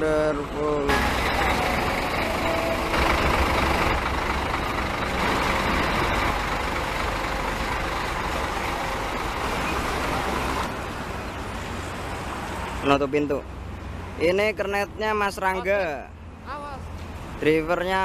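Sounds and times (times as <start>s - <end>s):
diesel engine idling: 0.0s - 11.1s.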